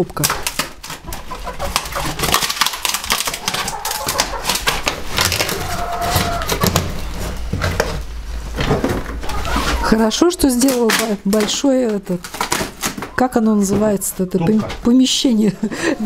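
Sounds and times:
wooden slats snapping and splintering: 0.2s - 1.0s, 1.7s - 7.0s, 10.4s - 13.2s.

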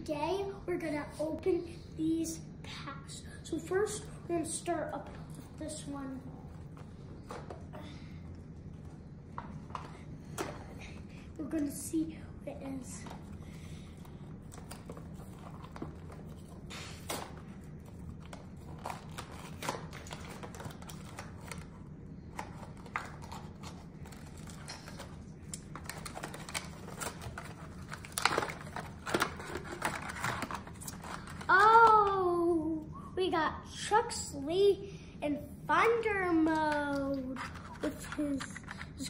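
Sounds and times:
plastic wrap crinkling and tearing: 14.5s - 21.7s, 22.4s - 32.2s.

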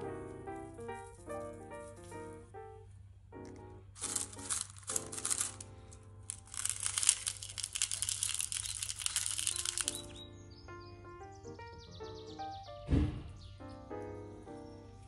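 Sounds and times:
light background music: 0.0s - 7.9s, 9.2s - 15.0s
salt crystals pattering on stone: 0.8s - 2.2s, 4.0s - 10.2s.

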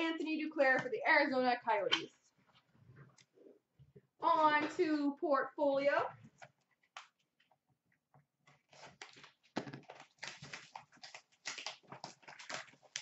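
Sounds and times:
plastic wrap crackling: 8.5s - 13.0s.

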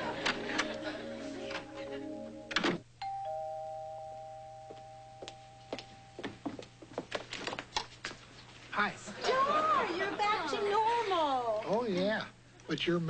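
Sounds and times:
two-note doorbell chime: 3.0s - 6.3s
footsteps: 4.7s - 8.7s.

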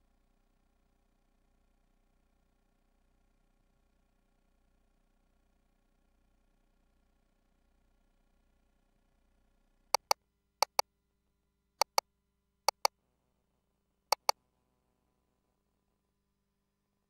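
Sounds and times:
sharp console double clicks: 10.0s - 10.8s, 14.1s - 14.3s.

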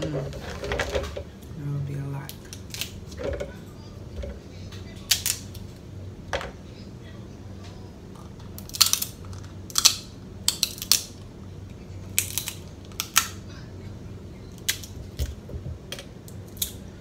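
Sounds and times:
faint low hum: 0.0s - 17.0s
crab shell crackling while eating: 2.3s - 3.2s, 5.0s - 5.7s, 8.2s - 11.3s, 12.0s - 13.4s, 14.5s - 15.2s, 16.2s - 16.9s.

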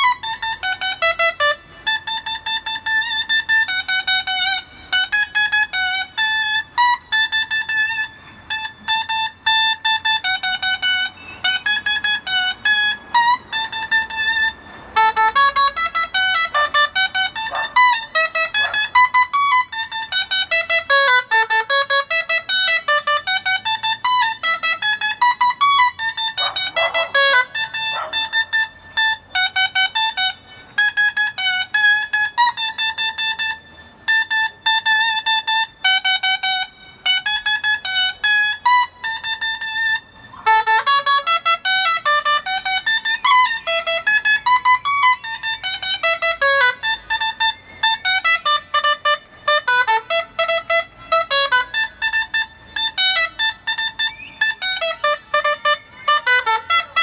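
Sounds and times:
shawm playing bright melody: 0.0s - 57.0s.

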